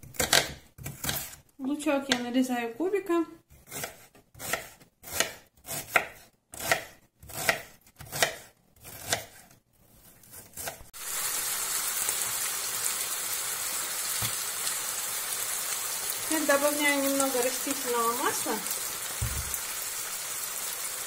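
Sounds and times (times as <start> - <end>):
knife chopping on plastic board: 0.0 - 1.4, 3.7 - 9.6
mushrooms sizzling in a pan: 11.0 - 21.0.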